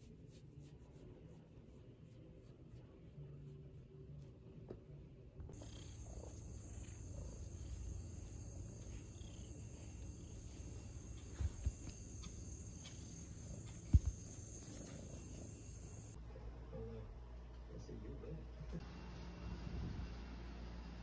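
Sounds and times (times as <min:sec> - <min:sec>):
cat purring: 0:05.5 - 0:16.2.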